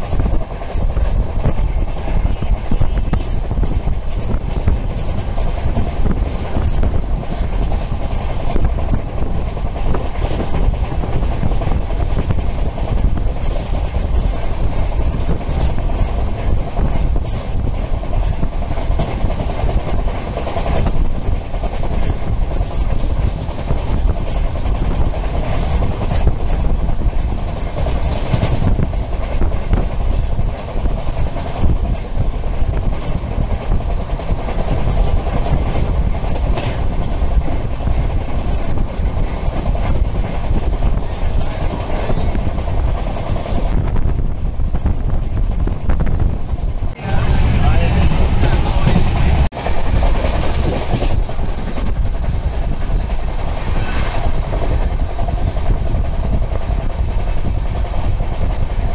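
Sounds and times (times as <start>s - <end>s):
wheels clacking over rail joints: 0.0s - 45.7s
train rumble: 0.0s - 58.9s.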